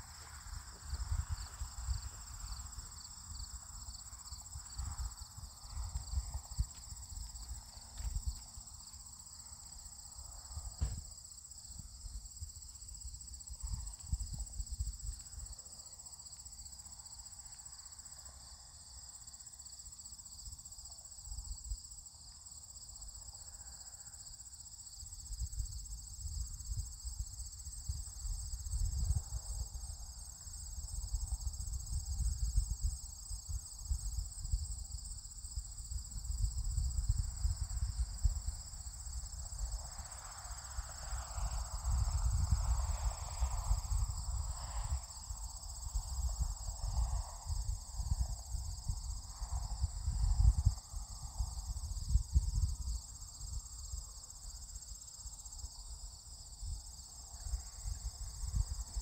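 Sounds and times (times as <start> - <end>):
wind buffeting microphone: 4.5 - 8.7, 25.4 - 39.9, 40.9 - 54.1.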